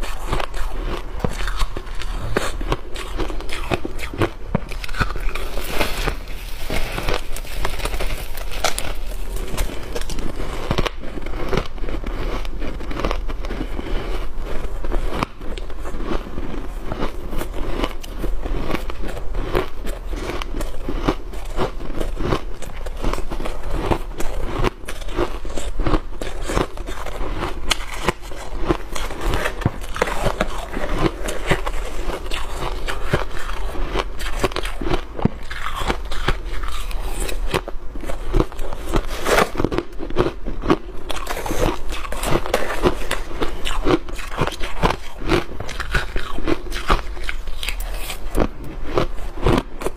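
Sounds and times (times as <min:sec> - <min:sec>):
ice crunching: 0:00.0 - 0:12.3
steady low hum: 0:00.0 - 0:49.9.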